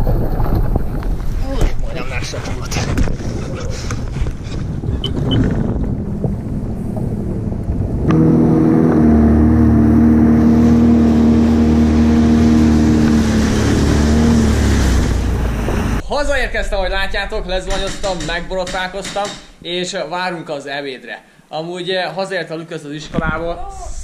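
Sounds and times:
water noise: 0.0s - 19.7s
wind: 0.0s - 24.0s
jet ski engine drone: 5.9s - 16.0s.

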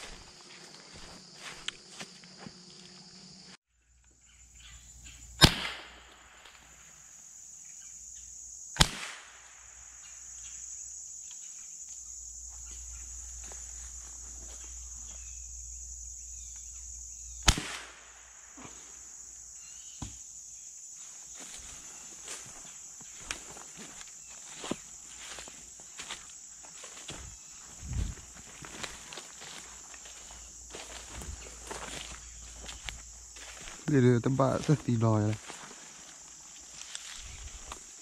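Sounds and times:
high insect buzz: 0.0s - 38.0s
gunshots with short echo: 5.4s - 6.0s.

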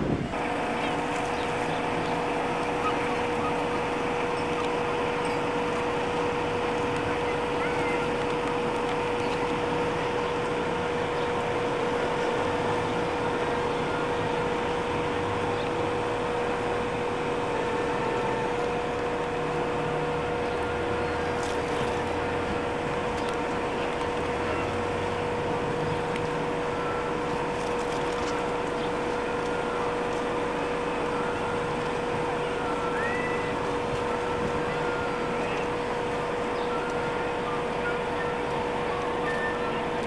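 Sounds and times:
steady mid-pitched hum: 0.0s - 40.0s.

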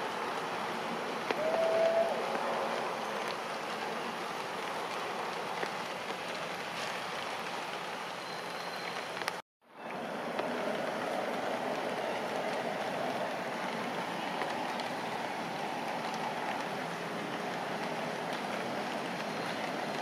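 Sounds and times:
rain falling on leaves: 0.0s - 20.0s.

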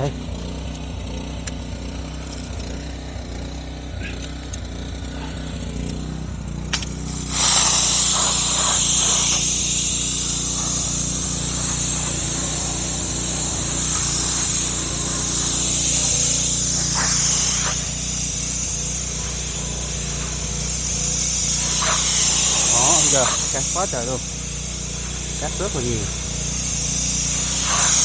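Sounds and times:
pressure washer humming: 0.0s - 28.0s
water hissing from jets: 6.7s - 28.0s.

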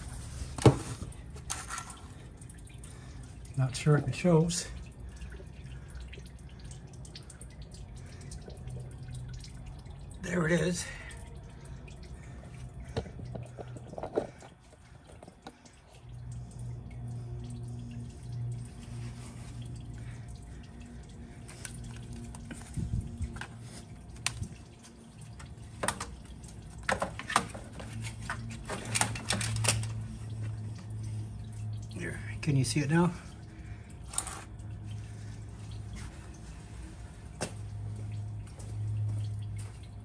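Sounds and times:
low steady hum: 0.0s - 40.0s
oil dripping: 0.0s - 40.0s.

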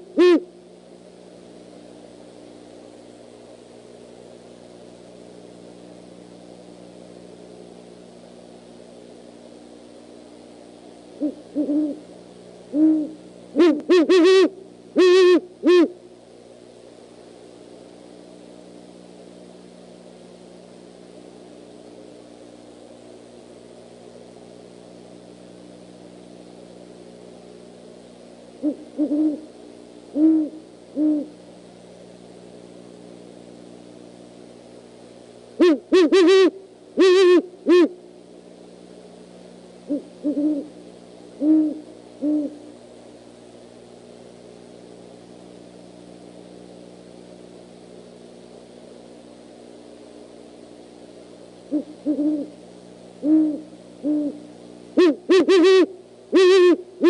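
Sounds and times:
owls hooting: 0.0s - 0.6s, 11.2s - 12.1s, 12.7s - 16.0s, 28.6s - 29.5s, 30.1s - 31.4s, 35.6s - 38.0s, 39.9s - 40.8s, 41.4s - 42.7s, 51.7s - 52.6s, 53.2s - 57.0s.

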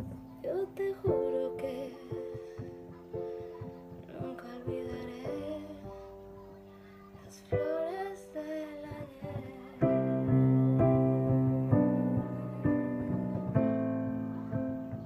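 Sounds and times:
woman singing: 0.0s - 13.7s
piano chords: 0.0s - 15.0s
soft accompaniment: 0.0s - 15.0s.

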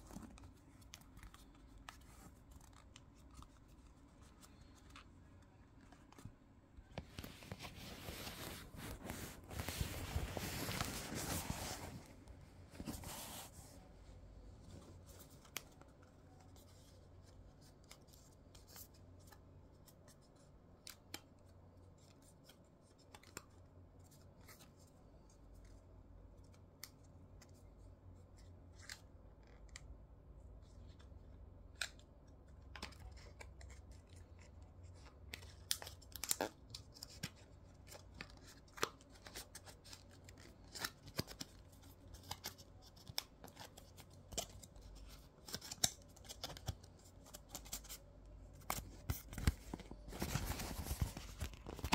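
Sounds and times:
packaging rustling: 48.6s - 51.9s.

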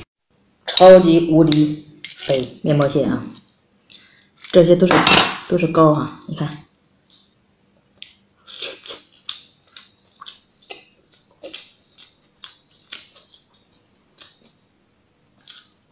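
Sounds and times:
wet chewing and lip smacks: 6.8s - 14.7s.

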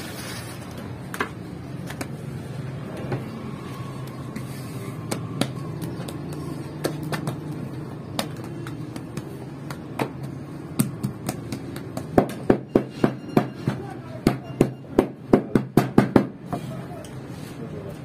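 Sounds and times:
hands slapping dough: 5.0s - 12.5s.

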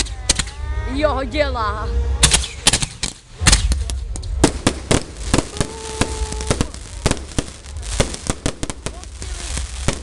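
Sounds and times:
fireworks bangs: 2.2s - 10.0s
low rumble: 3.3s - 10.0s.

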